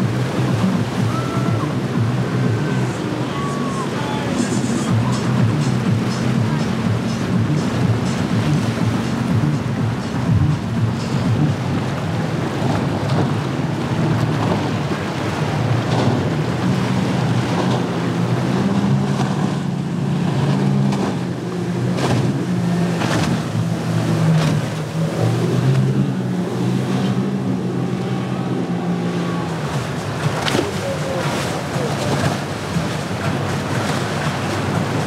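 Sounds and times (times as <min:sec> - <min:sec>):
outboard motors running: 0:00.0 - 0:35.0
hull slaps: 0:04.9 - 0:26.2, 0:29.6 - 0:35.0.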